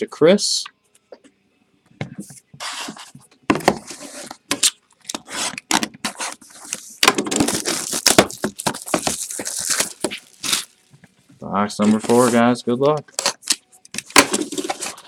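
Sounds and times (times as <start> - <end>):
cardboard boxes scraping and knocking: 2.1 - 4.5, 11.8 - 12.5, 14.2 - 15.0
scraping at box wrapping: 5.2 - 10.8, 11.8 - 12.4.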